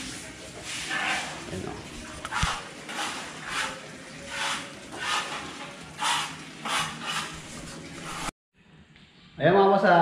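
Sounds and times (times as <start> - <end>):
trowel scraping wet cement: 2.2 - 8.3.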